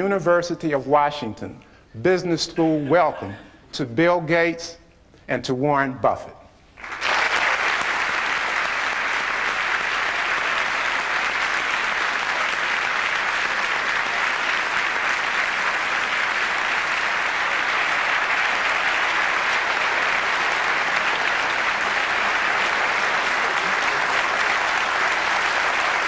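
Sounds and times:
audience applauding: 0:06.8 - 0:26.0.

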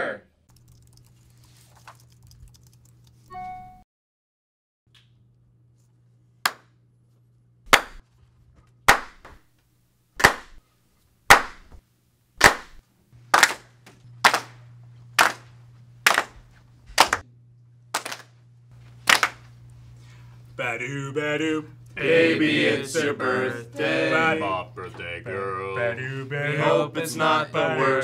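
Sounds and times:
people clapping in unison: 0:07.7 - 0:08.0, 0:08.9 - 0:09.4, 0:10.2 - 0:10.6, 0:11.3 - 0:11.7, 0:12.4 - 0:14.6, 0:15.2 - 0:16.4, 0:17.0 - 0:17.2, 0:18.0 - 0:18.3, 0:19.0 - 0:19.5.

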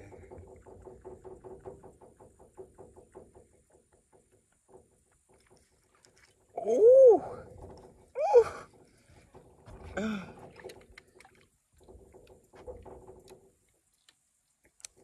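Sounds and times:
man exclaiming: 0:06.6 - 0:07.4.

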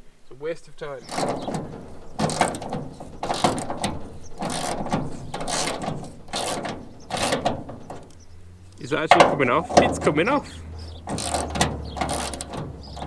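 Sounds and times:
ratchet wrench clicking: 0:02.2 - 0:08.2, 0:11.0 - 0:13.0.

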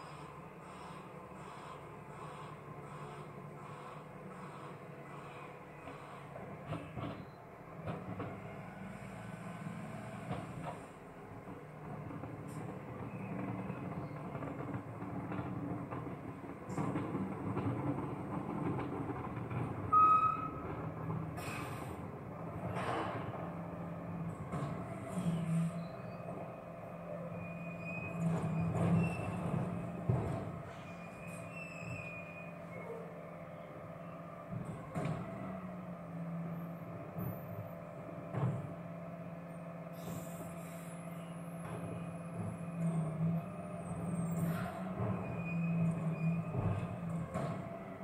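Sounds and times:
bin lorry running: 0:00.0 - 0:48.0
garbage truck engine humming: 0:19.9 - 0:48.0
short high squeal: 0:20.0 - 0:20.6, 0:30.8 - 0:33.0.

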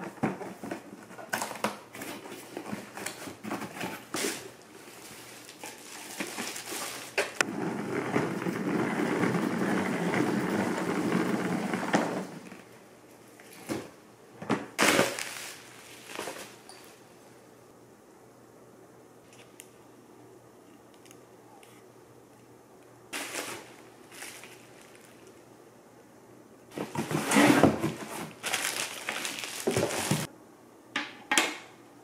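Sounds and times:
bubble wrap crackling: 0:04.1 - 0:07.4, 0:14.8 - 0:16.7, 0:23.2 - 0:25.4, 0:26.8 - 0:30.3
cardboard box being opened: 0:26.7 - 0:30.3.

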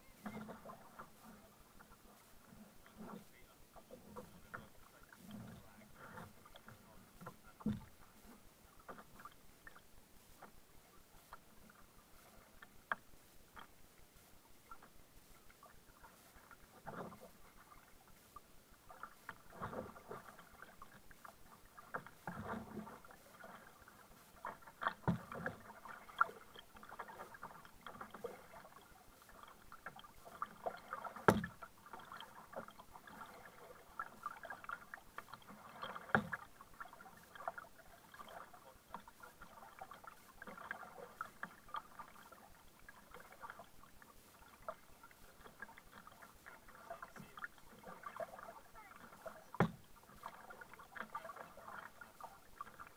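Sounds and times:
paddle splashing in water: 0:00.0 - 0:52.9
paddle knocks: 0:02.9 - 0:08.0, 0:30.8 - 0:32.7, 0:49.0 - 0:51.1.

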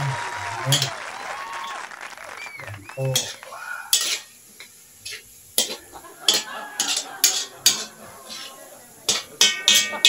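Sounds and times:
metal spatula scraping pan: 0:03.2 - 0:04.3, 0:05.0 - 0:10.0.

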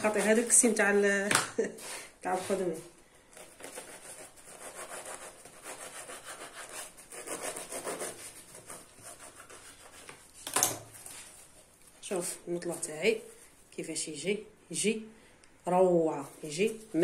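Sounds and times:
knife sawing through bread: 0:03.6 - 0:10.0.

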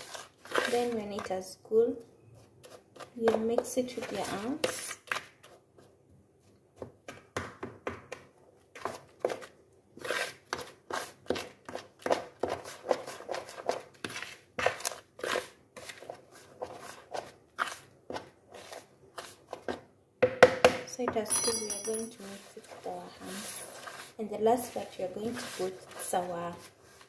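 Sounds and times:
dough squeezed by hand in bowl: 0:00.0 - 0:01.4, 0:08.6 - 0:19.7, 0:22.4 - 0:27.0.

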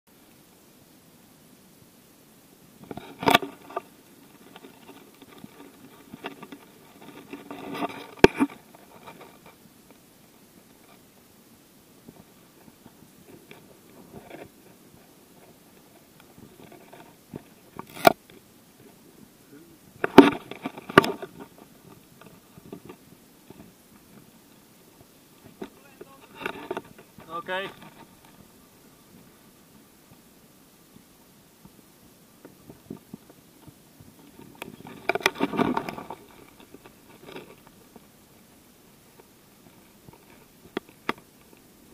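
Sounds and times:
camera handling rustles and clicks: 0:02.8 - 0:03.8, 0:04.4 - 0:09.6, 0:16.5 - 0:18.2, 0:20.0 - 0:23.0, 0:34.4 - 0:37.8
crackling scraping and clicking: 0:02.8 - 0:10.0, 0:12.0 - 0:19.0, 0:20.0 - 0:28.5, 0:32.4 - 0:38.1, 0:39.1 - 0:41.7.

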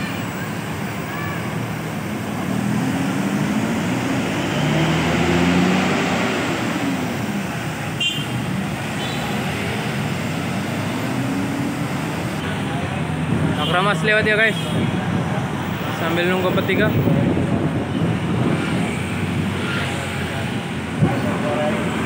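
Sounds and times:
road traffic: 0:00.0 - 0:22.0
passing motorcycles: 0:01.4 - 0:22.0
coach engine accelerating: 0:01.7 - 0:13.4.

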